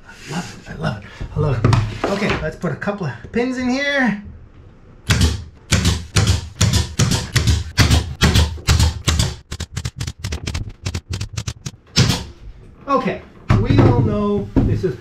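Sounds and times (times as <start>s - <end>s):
pin nailer firing: 5.1s - 12.4s.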